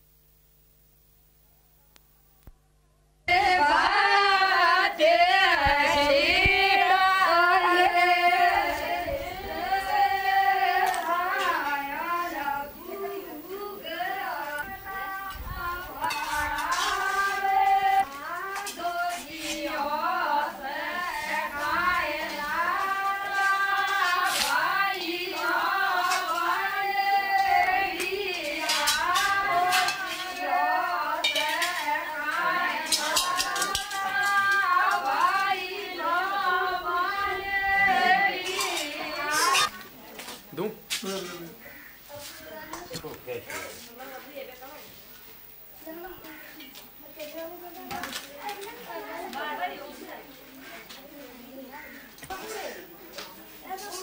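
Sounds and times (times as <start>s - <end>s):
women singing folk song: 3.3s - 39.9s.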